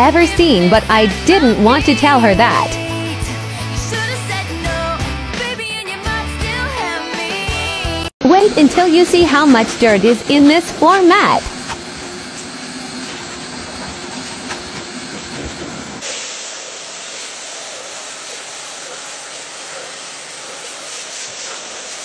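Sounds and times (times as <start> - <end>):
pressure-washer jet hissing: 8.4 - 22.0.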